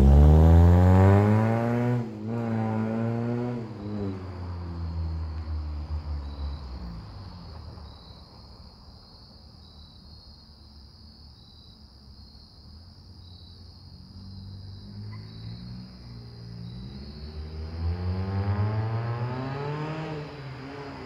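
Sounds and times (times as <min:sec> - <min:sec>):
crickets chirping: 0:03.4 - 0:21.0
car exhaust driving by: 0:14.1 - 0:21.0.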